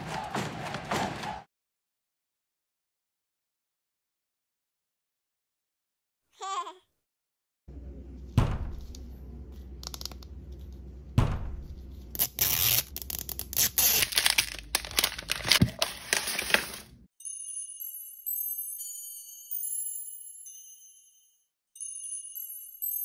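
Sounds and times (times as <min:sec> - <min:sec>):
low steady hum: 0:07.7 - 0:12.2
plastic wrapper crinkling and tearing: 0:12.2 - 0:16.9
tinkling music: 0:17.1 - 0:23.0.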